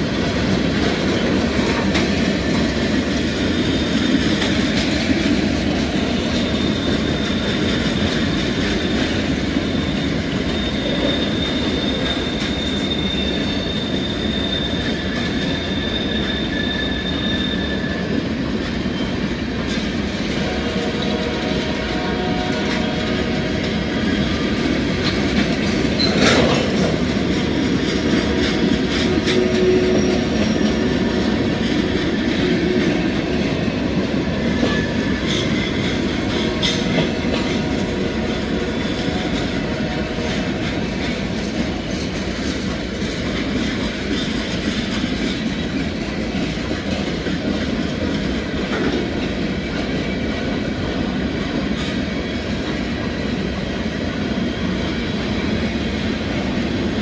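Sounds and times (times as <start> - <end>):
faint high wheel squeal: 6.2 - 9.0, 9.7 - 18.3
clicking over rail joints: 25.0 - 30.5.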